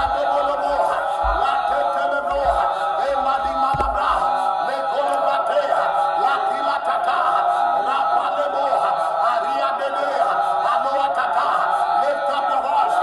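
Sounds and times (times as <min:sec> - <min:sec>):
crowd chanting: 0:00.0 - 0:13.0.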